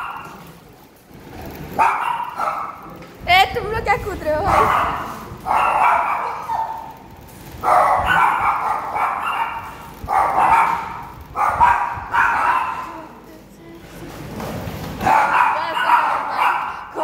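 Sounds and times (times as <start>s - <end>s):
dogs barking: 0.0s - 0.5s, 1.7s - 3.0s, 4.4s - 13.1s, 15.0s - 17.0s.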